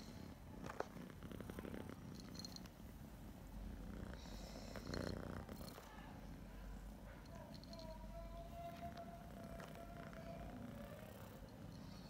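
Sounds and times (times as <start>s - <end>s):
cat purring: 0.0s - 12.0s.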